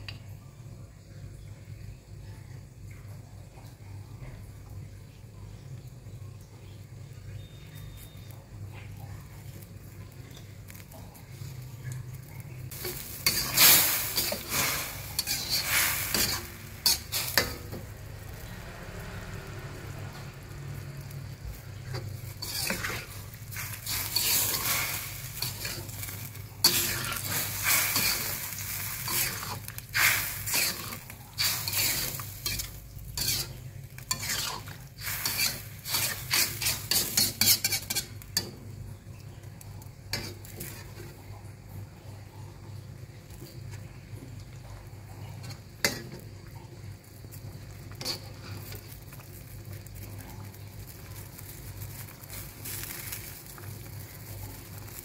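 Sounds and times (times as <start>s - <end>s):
food sizzling: 1.0s - 55.0s
spatula scraping a wok: 12.4s - 38.7s, 40.1s - 41.3s, 44.6s - 46.3s, 47.3s - 55.0s.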